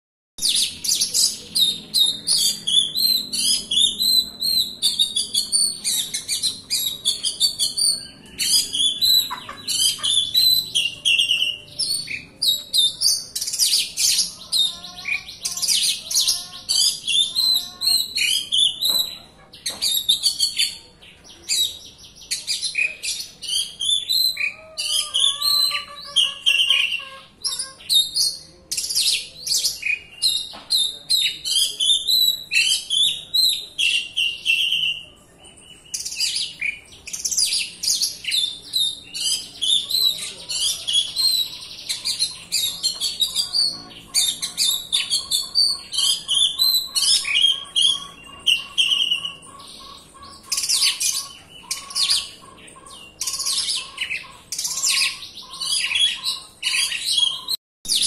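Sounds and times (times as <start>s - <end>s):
bird singing rapid chirps: 0.4s - 58.0s.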